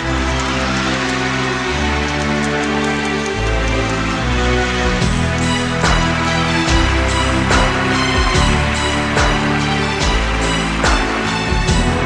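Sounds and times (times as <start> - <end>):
music with beat and bass: 4.5 - 12.0.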